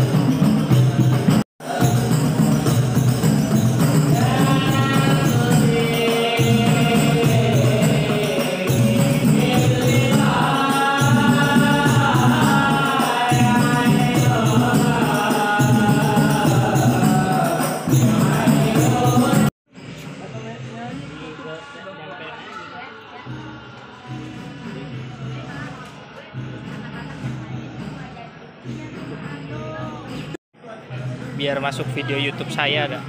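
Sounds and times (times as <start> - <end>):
frame drums beating: 0.0 - 19.5
men singing a chanted melody: 1.0 - 19.5.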